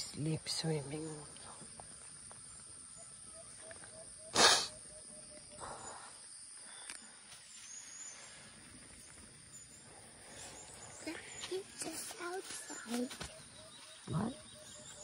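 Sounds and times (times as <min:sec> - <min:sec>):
high-pitched insect chorus: 0:00.0 - 0:15.0
short loud hiss: 0:04.3 - 0:04.7.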